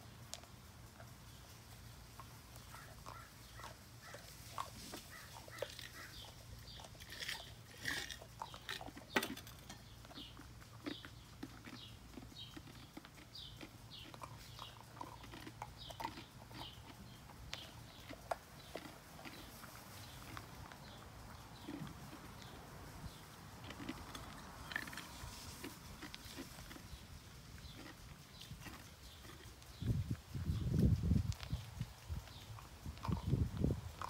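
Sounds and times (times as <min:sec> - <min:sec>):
puppy crunching ice: 0:02.2 - 0:22.5, 0:23.1 - 0:29.9.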